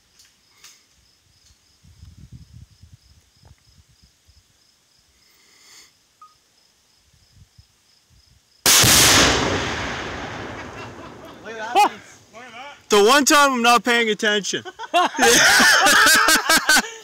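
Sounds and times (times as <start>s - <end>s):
faint insect chirps: 0.0s - 8.7s
wind rumble on microphone: 1.4s - 4.4s, 7.1s - 8.4s
explosion boom: 8.7s - 12.2s.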